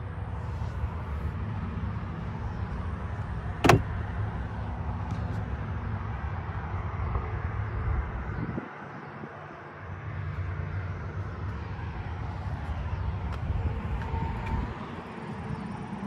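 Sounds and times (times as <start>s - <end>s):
highway traffic: 0.0s - 16.0s
wind rumbling on microphone: 6.0s - 9.5s, 10.4s - 16.0s.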